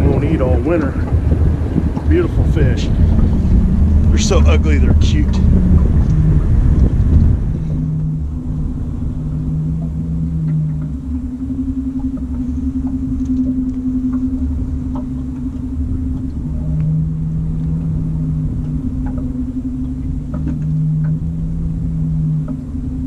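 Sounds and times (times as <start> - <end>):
boat motor humming: 0.0 - 23.0
low rumble: 0.0 - 23.0
faint ticks: 9.3 - 21.7.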